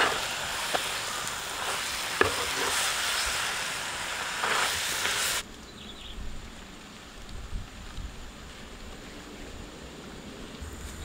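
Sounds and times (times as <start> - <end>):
spatula scraping pan: 0.0 - 3.5, 4.2 - 5.4
meat sizzling in a pan: 0.0 - 5.4.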